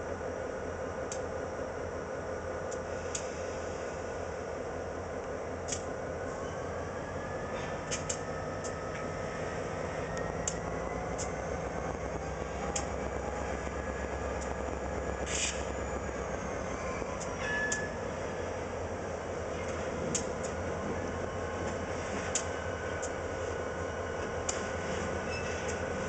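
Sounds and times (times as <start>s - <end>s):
diesel locomotive rumbling: 0.0s - 26.0s
squealing of rail cars: 6.2s - 26.0s.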